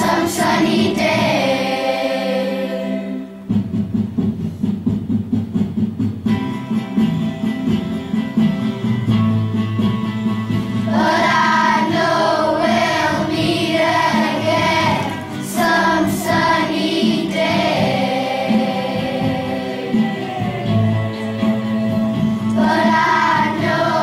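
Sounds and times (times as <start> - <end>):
children's choir singing: 0.0 - 3.5, 10.8 - 24.0
instrumental accompaniment: 0.0 - 24.0.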